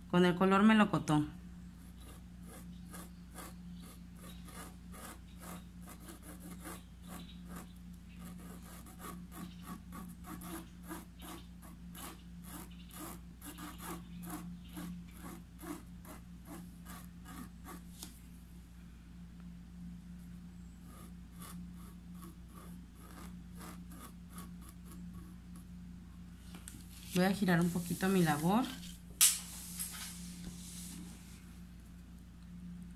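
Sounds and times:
faint steady hum: 0.0 - 32.9
paintbrush bristle strokes on fabric: 26.8 - 31.6.

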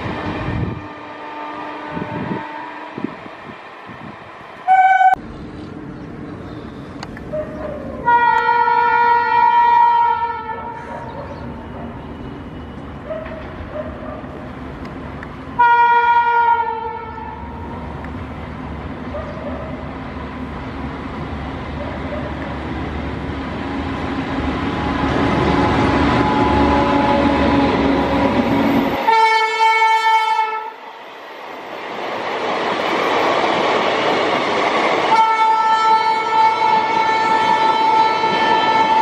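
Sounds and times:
rumble of moving train: 0.0 - 39.0
locomotive horn blasts: 0.5 - 3.3, 4.7 - 5.2, 8.0 - 10.9, 15.6 - 17.5, 25.0 - 30.7, 35.1 - 39.0.

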